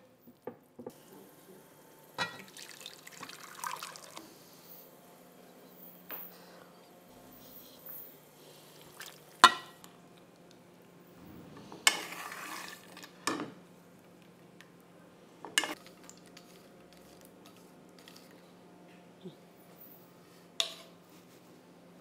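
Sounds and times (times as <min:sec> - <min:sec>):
dishes clinking: 0:02.2 - 0:02.6, 0:09.4 - 0:09.8
spatula scraping frying pan: 0:11.6 - 0:13.3.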